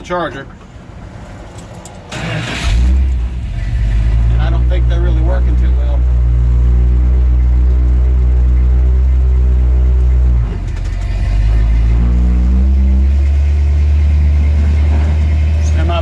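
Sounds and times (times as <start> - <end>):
truck engine drone: 0.0 - 16.0.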